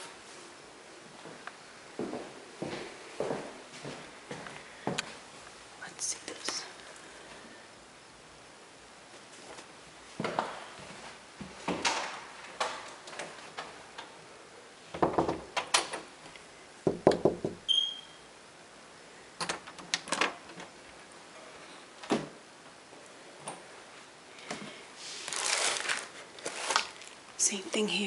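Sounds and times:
closet doors knocking and clattering: 0:14.9 - 0:16.1, 0:16.8 - 0:17.6
door squeak: 0:17.7 - 0:18.3.

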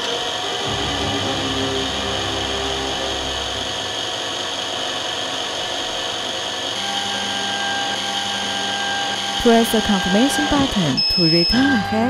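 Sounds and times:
small drill motor running: 0:02.4 - 0:12.0
second steady tone: 0:06.8 - 0:12.0.

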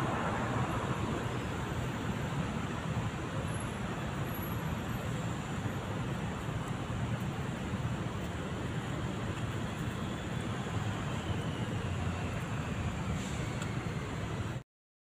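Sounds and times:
road traffic rumble: 0:00.0 - 0:14.6.

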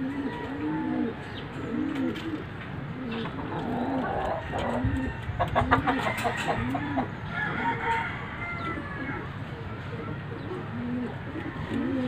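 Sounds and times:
pigeons cooing: 0:00.0 - 0:12.0.

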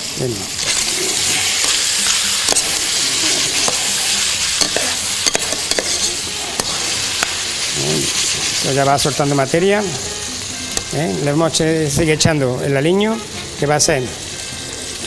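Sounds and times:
meat sizzling in a pot: 0:00.0 - 0:15.0
metal spoon scraping a pot: 0:00.6 - 0:06.8.

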